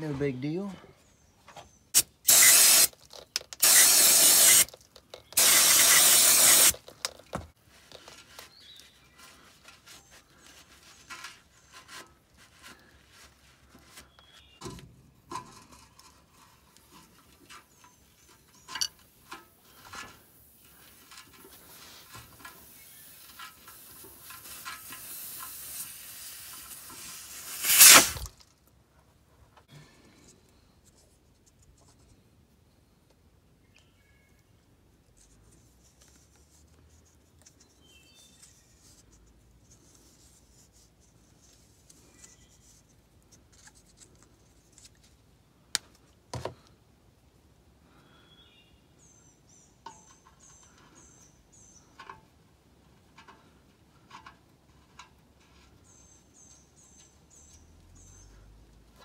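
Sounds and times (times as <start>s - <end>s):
aerosol spray can hissing: 2.0s - 3.0s, 3.6s - 4.7s, 5.4s - 6.8s, 23.0s - 28.2s
air hiss: 2.0s - 3.0s, 3.6s - 4.7s, 5.4s - 6.8s, 22.7s - 28.3s
wrench clicks and scrapes: 2.0s - 7.3s.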